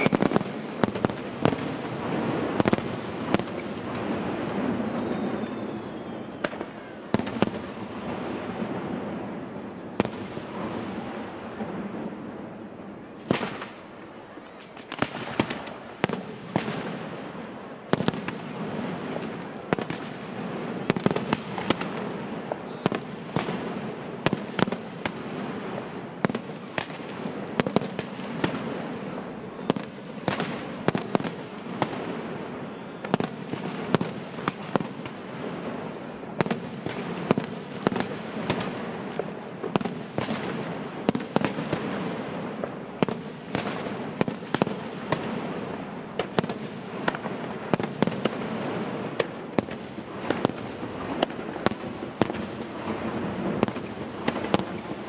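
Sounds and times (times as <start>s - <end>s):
fireworks bursting with sharp bangs: 0.0s - 55.0s.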